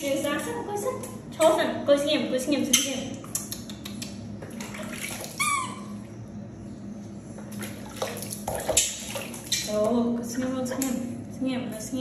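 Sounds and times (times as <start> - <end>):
water splashing in a basin: 4.4 - 5.5, 7.5 - 9.8.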